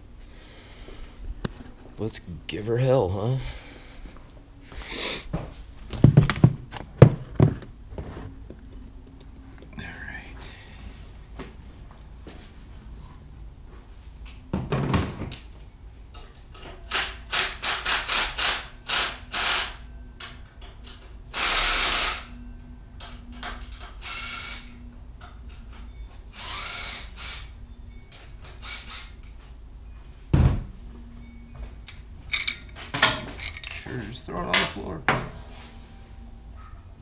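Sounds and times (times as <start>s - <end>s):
power drill bursts: 17.0s - 19.8s, 21.3s - 22.3s, 24.0s - 24.7s, 26.3s - 27.5s.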